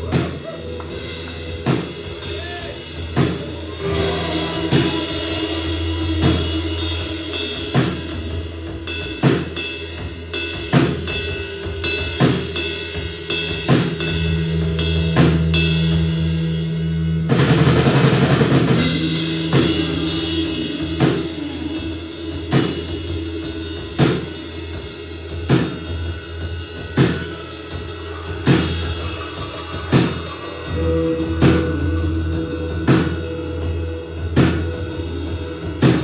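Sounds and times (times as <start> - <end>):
sustained guitar chords: 0.0 - 9.2, 17.3 - 26.8, 27.7 - 36.0
drum kit beat: 0.0 - 36.0.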